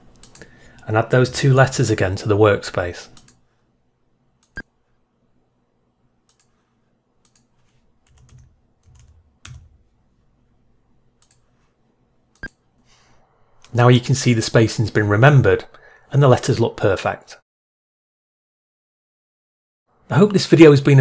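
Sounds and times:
computer keyboard and mouse clicks: 0.1s - 0.5s, 3.2s - 3.4s, 6.3s - 6.6s, 7.2s - 9.8s, 11.2s - 11.5s.

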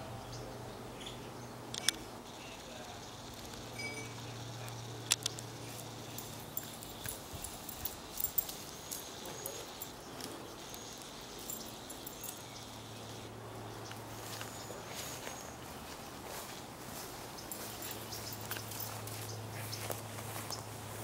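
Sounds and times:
sharp ticks and snaps: 1.7s - 14.5s, 17.0s - 20.7s
dog rustling through grass: 5.6s - 13.2s, 13.9s - 21.0s.

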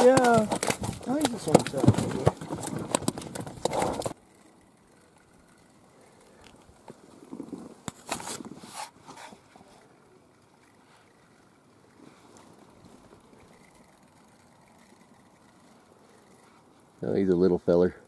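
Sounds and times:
scattered clicks and knocks: 0.0s - 4.2s.

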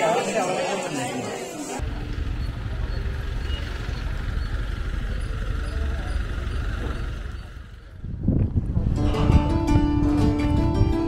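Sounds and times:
wind rumbling on microphone: 7.9s - 11.0s.

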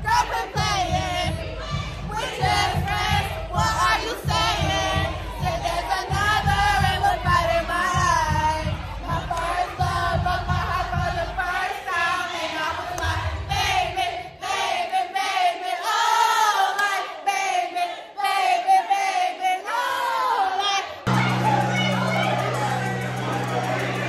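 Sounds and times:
bass beat: 0.0s - 11.4s, 21.1s - 24.0s
music: 0.0s - 15.0s, 21.1s - 24.0s
crowd singing and shouting: 0.0s - 24.0s.

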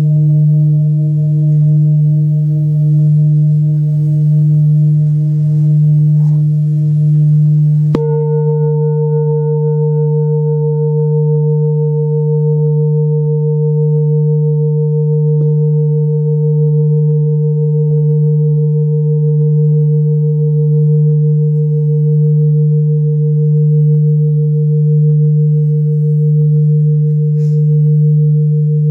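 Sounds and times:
bowl struck with mallet: 0.0s - 28.9s
singing bowls humming: 0.0s - 28.9s.

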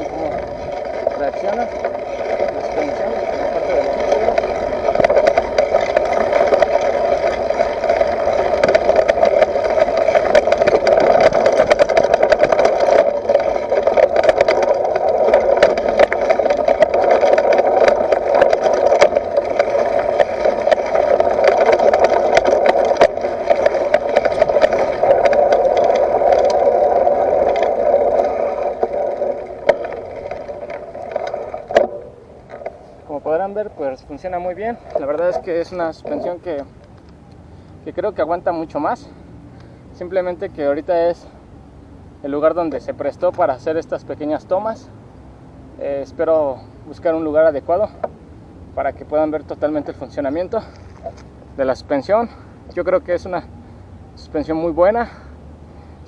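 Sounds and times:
tyres crunching over gravel: 0.0s - 39.0s, 48.8s - 53.4s
bike rattling: 0.0s - 41.4s, 42.2s - 44.9s, 45.8s - 53.4s.

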